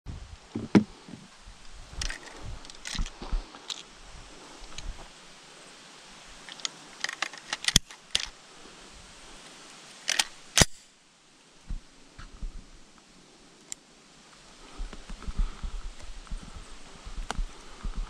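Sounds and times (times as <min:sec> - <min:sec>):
gun handling noise: 0:02.0 - 0:03.9, 0:06.4 - 0:08.4, 0:10.0 - 0:10.9
gun mechanism clicking: 0:06.5 - 0:08.3, 0:10.0 - 0:10.8.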